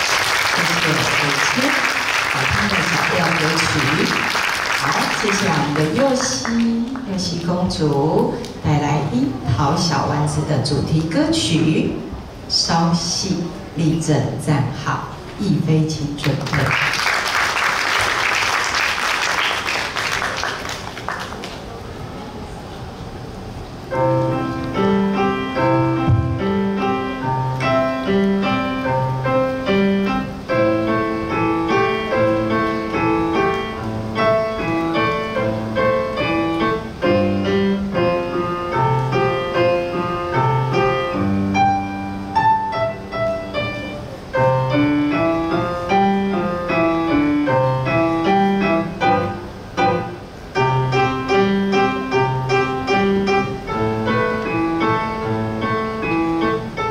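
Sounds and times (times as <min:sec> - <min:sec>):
solo piano: 0:21.6 - 0:56.9.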